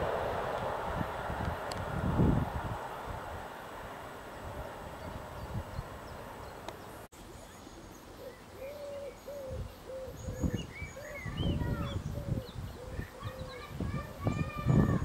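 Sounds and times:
distant train rumbling: 0:00.0 - 0:07.0.

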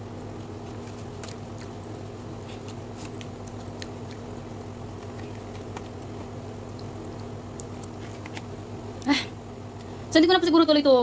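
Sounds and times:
steady low hum: 0:00.0 - 0:11.0
chewing with wet mouth clicks: 0:00.8 - 0:08.5.

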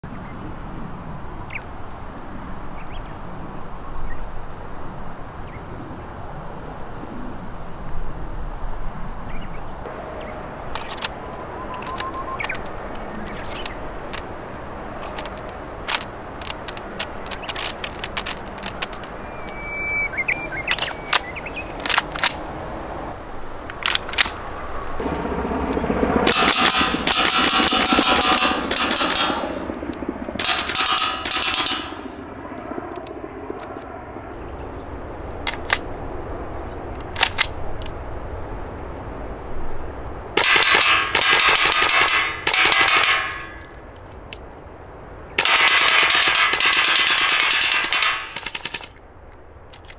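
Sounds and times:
airsoft rifle firing: 0:26.3 - 0:29.8, 0:30.4 - 0:32.2, 0:40.4 - 0:43.6, 0:45.4 - 0:48.9.

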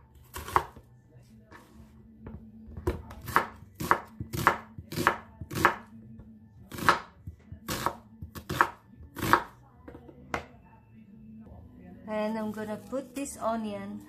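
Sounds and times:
knife slicing onion on wooden board: 0:00.2 - 0:00.9, 0:02.3 - 0:05.9, 0:06.7 - 0:09.6.

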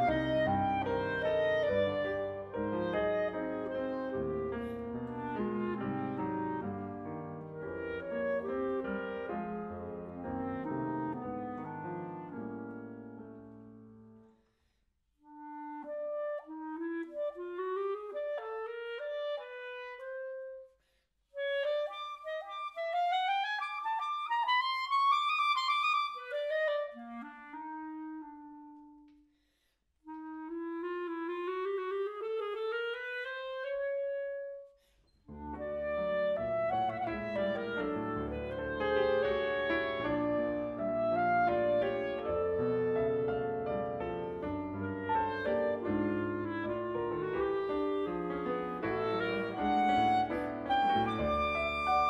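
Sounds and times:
solo clarinet playing: 0:00.0 - 0:13.6, 0:15.2 - 0:20.7, 0:21.3 - 0:29.2, 0:30.0 - 0:34.7, 0:35.3 - 0:52.0
piano chords: 0:35.3 - 0:52.0.

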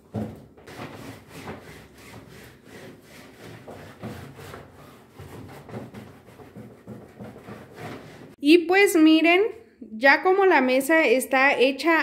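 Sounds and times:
wiping plastic tablecloth: 0:00.2 - 0:08.4.

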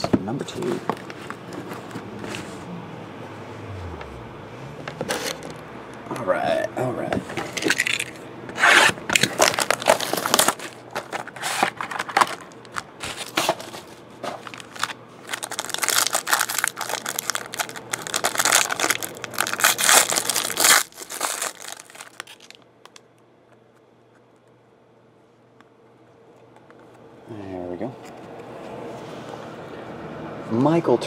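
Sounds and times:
plastic and foil crinkling and tearing: 0:07.5 - 0:23.0.

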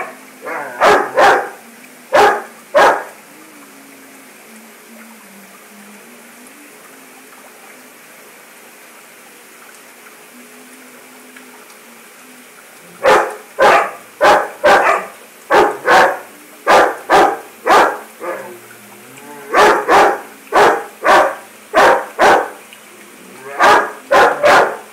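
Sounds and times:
dog barking: 0:00.0 - 0:03.1, 0:13.0 - 0:18.5, 0:19.5 - 0:22.6, 0:23.6 - 0:24.9
aquarium water rushing: 0:00.0 - 0:24.9.

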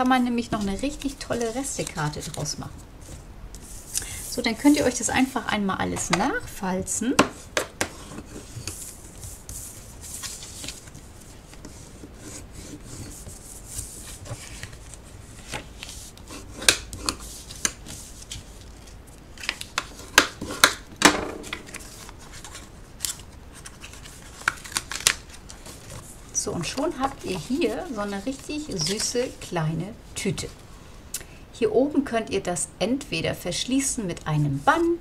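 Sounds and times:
stiff card crackling and snapping: 0:21.6 - 0:25.6.

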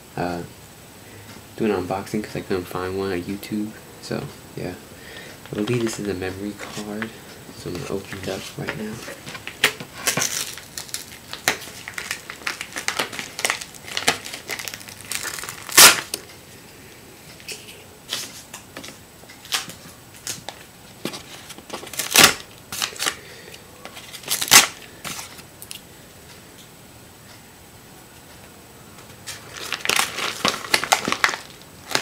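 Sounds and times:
packaging crinkling and rustling: 0:05.4 - 0:07.2, 0:07.8 - 0:16.2, 0:18.1 - 0:23.2, 0:23.8 - 0:25.8, 0:29.2 - 0:32.0
packaging tearing: 0:08.2 - 0:16.2, 0:21.3 - 0:23.2, 0:23.9 - 0:25.4, 0:29.3 - 0:32.0
sharp cracks: 0:09.3 - 0:16.2.

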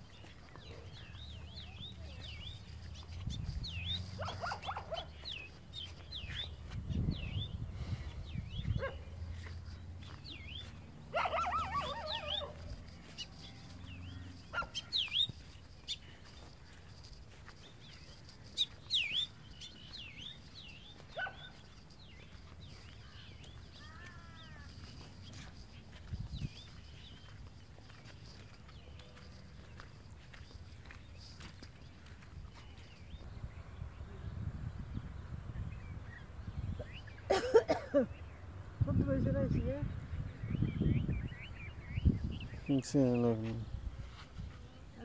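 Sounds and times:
small birds chirping: 0:00.0 - 0:45.0
dog barking: 0:04.2 - 0:05.2, 0:08.8 - 0:09.1, 0:11.1 - 0:12.7, 0:14.5 - 0:14.9, 0:21.2 - 0:21.6.

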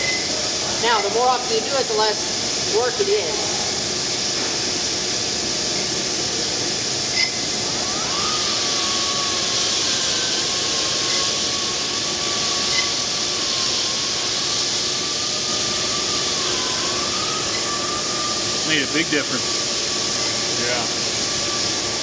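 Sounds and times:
grinding hiss: 0:00.0 - 0:22.0
spindle whine: 0:07.1 - 0:22.0.

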